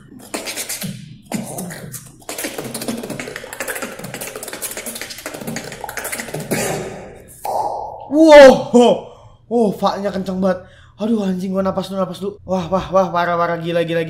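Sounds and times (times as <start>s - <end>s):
vocal beatboxing: 0.0s - 8.1s.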